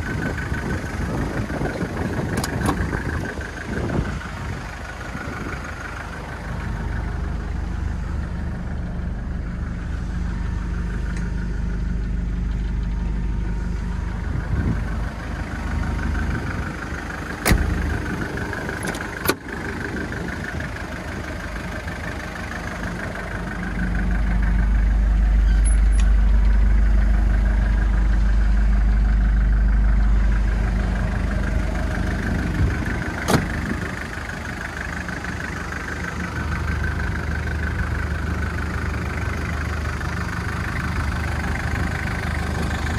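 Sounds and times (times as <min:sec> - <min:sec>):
car engine idling: 0:00.0 - 0:42.9
car door clicks: 0:02.3 - 0:03.0, 0:17.4 - 0:18.1, 0:18.8 - 0:19.5, 0:33.2 - 0:33.6.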